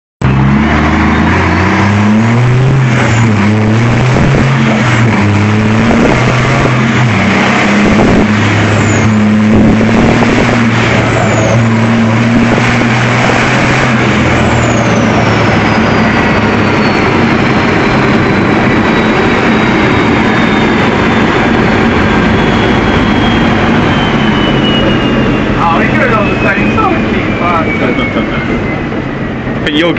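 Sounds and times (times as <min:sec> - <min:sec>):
racing engine revving: 0:00.2 - 0:29.9
thin high whistle: 0:22.0 - 0:29.4.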